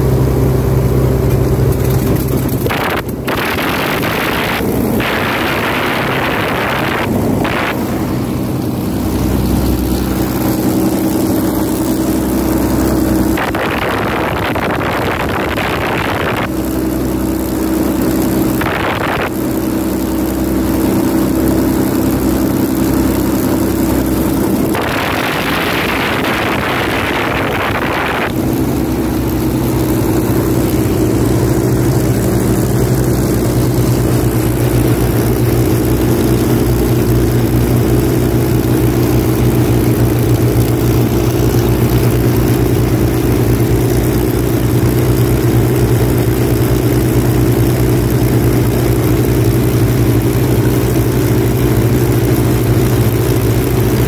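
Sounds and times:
aircraft piston engines droning: 0.0 - 54.0
wind noise on microphone: 24.4 - 38.0.

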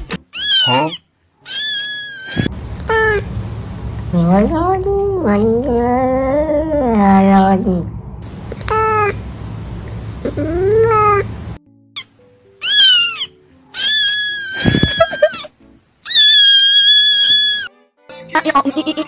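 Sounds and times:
kitten crying: 0.3 - 3.3, 8.6 - 9.2, 10.2 - 11.4, 12.6 - 17.7
cat meowing: 0.4 - 3.3, 8.6 - 9.2, 10.2 - 11.4, 12.6 - 15.4, 16.0 - 17.7
background hiss: 2.5 - 4.6, 8.2 - 11.6.

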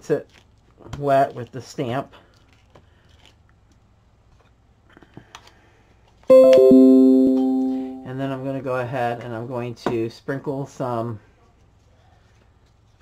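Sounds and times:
sustained musical chord: 6.3 - 8.1.

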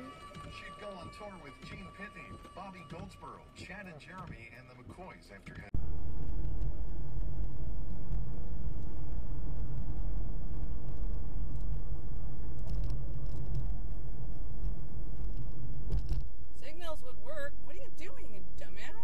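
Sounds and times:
car engine and tyres rumbling: 5.8 - 19.0.

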